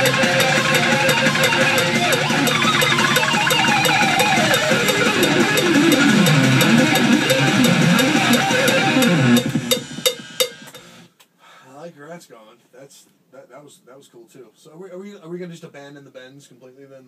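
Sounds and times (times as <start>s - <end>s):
distorted electric guitar solo: 0.0s - 11.1s
heavy metal backing track: 0.0s - 11.1s.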